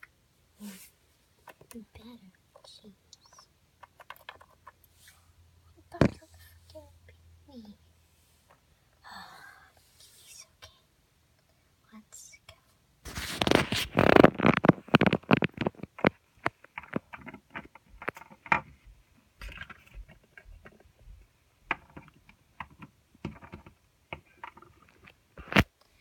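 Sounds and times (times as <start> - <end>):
sharp clicks and small knocks: 1.4 - 4.9, 13.4 - 25.7
handling noise on microphone: 13.0 - 25.7.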